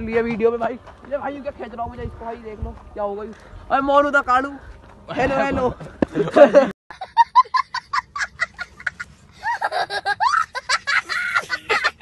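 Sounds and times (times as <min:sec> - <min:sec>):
young child laughing: 0:06.4 - 0:12.0.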